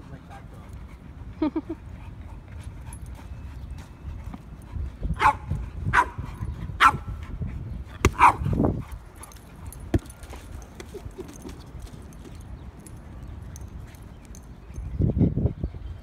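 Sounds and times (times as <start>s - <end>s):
dog barking: 6.8s - 7.0s, 8.2s - 8.4s.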